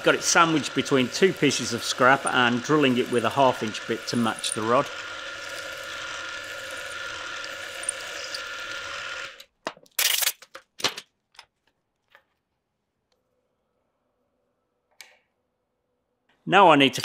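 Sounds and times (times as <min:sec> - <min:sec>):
drill cutting through metal: 0:00.0 - 0:09.5.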